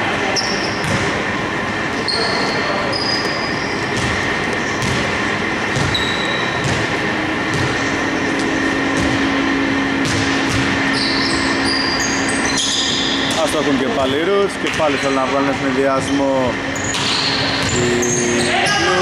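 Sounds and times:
sneakers squeaking: 0:00.3 - 0:01.2, 0:02.0 - 0:15.1, 0:15.9 - 0:19.0
basketball thumping: 0:04.8 - 0:06.0, 0:10.0 - 0:10.8
hall hum: 0:17.5 - 0:19.0.

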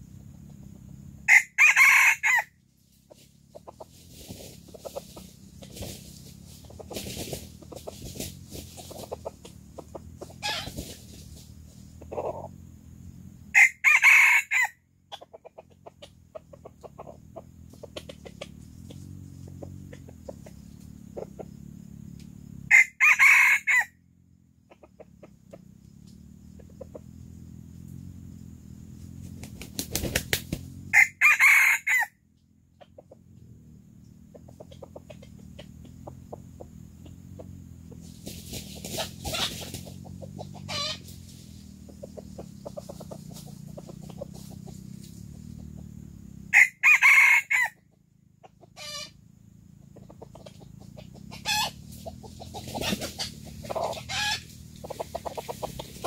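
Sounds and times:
rooster crowing: 0:01.3 - 0:02.6, 0:10.4 - 0:10.8, 0:13.5 - 0:14.8, 0:22.7 - 0:24.0, 0:30.9 - 0:32.2, 0:40.6 - 0:41.0, 0:46.5 - 0:47.8, 0:48.8 - 0:49.1, 0:51.3 - 0:51.8, 0:53.7 - 0:55.0.

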